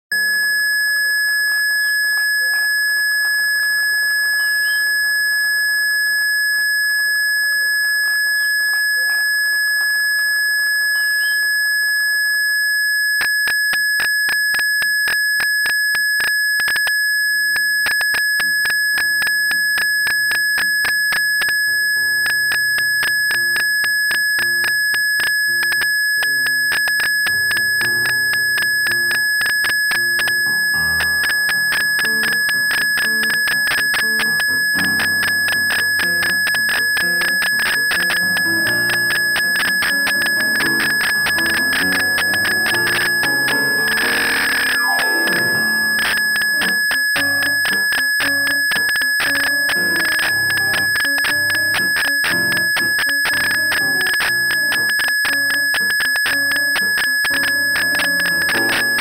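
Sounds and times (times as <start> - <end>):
high-pitched tone: 18.4 - 59.0
piano playing a tango: 41.6 - 46.0.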